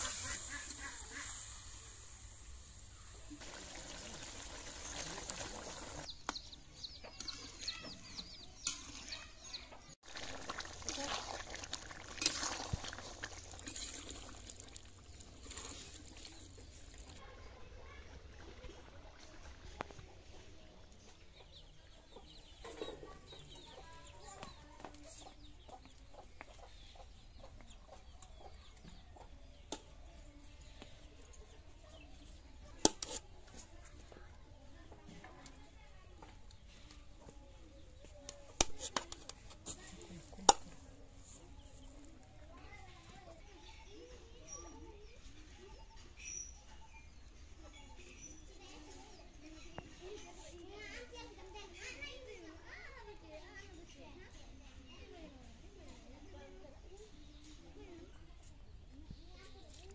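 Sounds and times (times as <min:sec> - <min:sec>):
chickens clucking: 0:00.0 - 0:09.9, 0:18.0 - 0:29.7
birds chirping: 0:00.0 - 0:12.2
curry bubbling in a pan: 0:03.3 - 0:06.1, 0:10.0 - 0:17.2.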